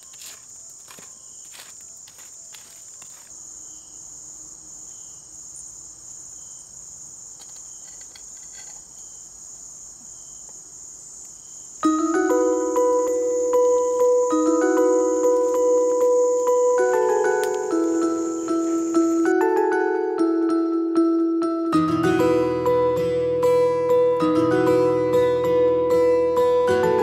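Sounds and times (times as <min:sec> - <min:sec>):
crickets trilling: 0:00.0 - 0:21.2
wood fire crackling: 0:15.2 - 0:19.2.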